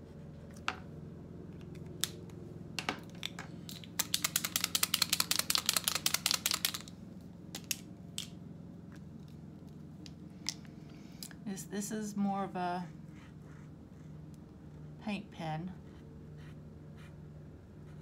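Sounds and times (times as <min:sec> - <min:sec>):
paint marker ball rattling: 0:03.7 - 0:06.9.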